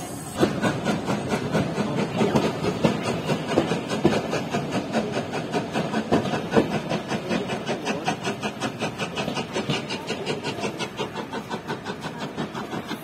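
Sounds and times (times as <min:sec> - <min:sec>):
train wheels clattering over rail joints: 0:00.4 - 0:13.0.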